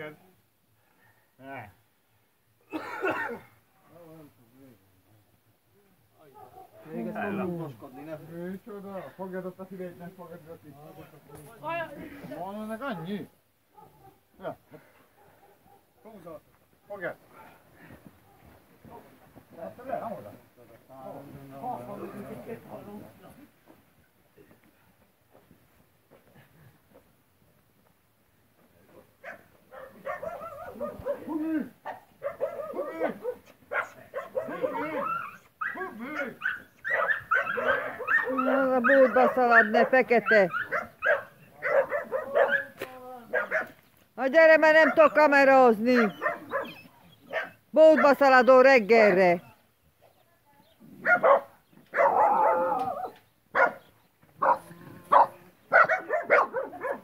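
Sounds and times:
dog barking and yelping: 0:06.4 - 0:07.3, 0:12.9 - 0:14.3, 0:15.2 - 0:15.9, 0:29.2 - 0:43.8, 0:44.7 - 0:48.4, 0:51.0 - 0:57.0.

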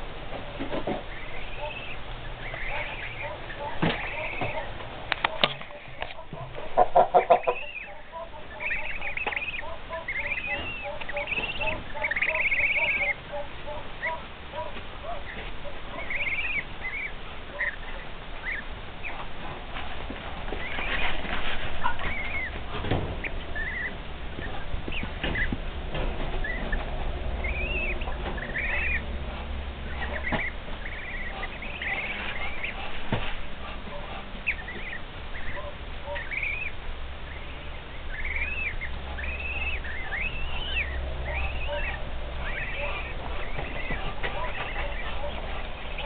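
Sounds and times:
goslings peeping: 0:00.0 - 0:46.0
rustling: 0:19.0 - 0:36.4.

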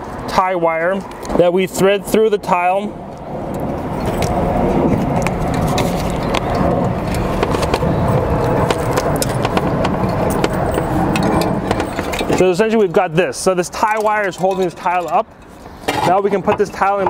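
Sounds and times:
low rumbling noise: 0:00.0 - 0:17.0.

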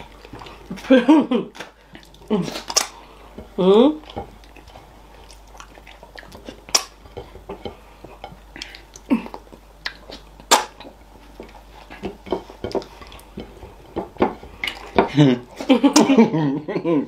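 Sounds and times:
wet lip smacks and chewing: 0:08.6 - 0:10.9.

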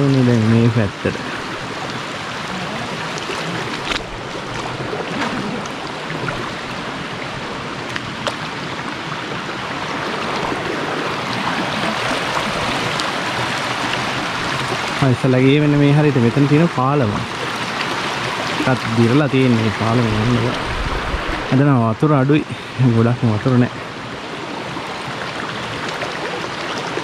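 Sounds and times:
stream rushing over rocks: 0:00.0 - 0:27.0.

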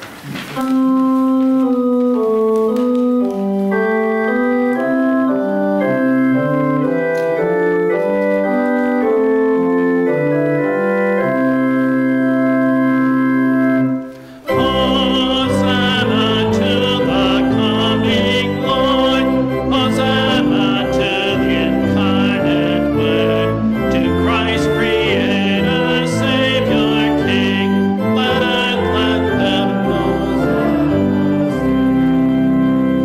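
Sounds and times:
church organ chords: 0:00.3 - 0:33.0
voices singing a hymn: 0:14.3 - 0:33.0.

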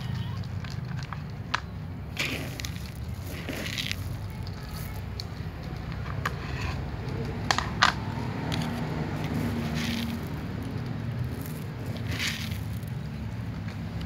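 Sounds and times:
cats crunching dry kibble: 0:00.0 - 0:14.0.

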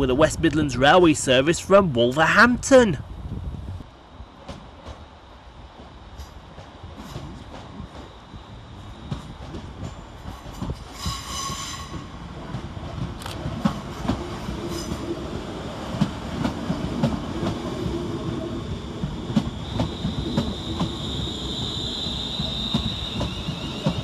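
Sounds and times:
train rumble: 0:00.0 - 0:24.0
brake squeal: 0:19.9 - 0:24.0.

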